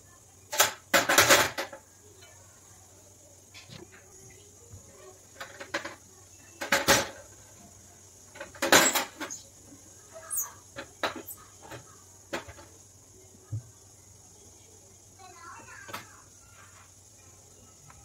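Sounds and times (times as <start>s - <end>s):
kitchen items clattering on counter: 0.6s - 1.8s.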